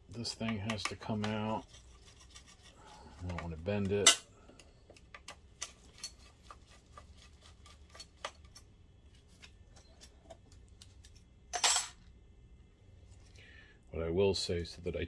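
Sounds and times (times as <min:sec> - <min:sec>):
light clicks and taps of parts: 0:03.2 - 0:05.8.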